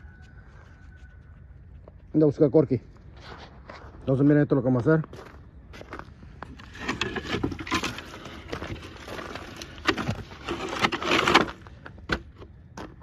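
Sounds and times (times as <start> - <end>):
footsteps crunching on snow: 2.9 - 6.8, 7.8 - 10.8
wooden pallet scraping: 6.4 - 13.0.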